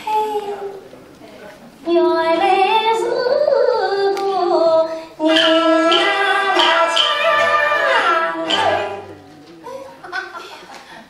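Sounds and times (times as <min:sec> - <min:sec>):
woman singing opera: 0:01.9 - 0:09.1
opera band accompanying: 0:05.2 - 0:11.0.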